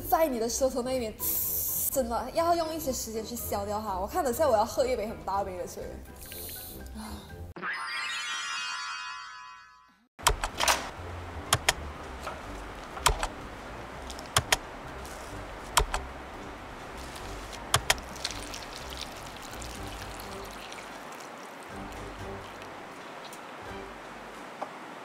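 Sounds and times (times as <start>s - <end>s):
water pouring into cup: 17.9s - 23.0s.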